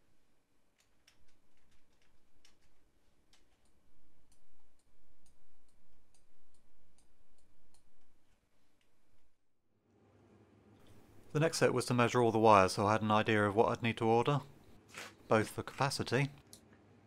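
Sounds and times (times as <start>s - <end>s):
computer mouse clicking: 0.8s - 8.1s.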